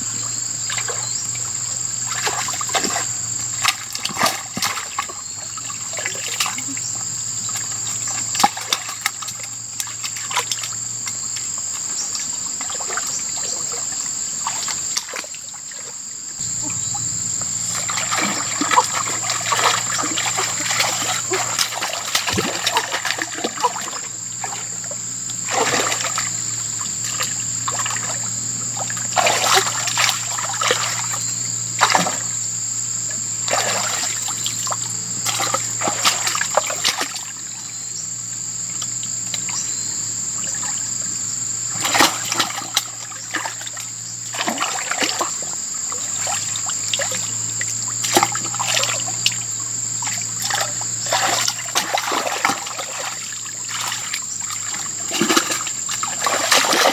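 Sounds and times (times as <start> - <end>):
water trickling: 16.4 - 39.8, 40.4 - 56.9
hands splashing in water: 17.6 - 24.0, 25.5 - 26.3, 29.1 - 31.2, 31.8 - 32.3, 35.2 - 37.2, 50.0 - 56.9.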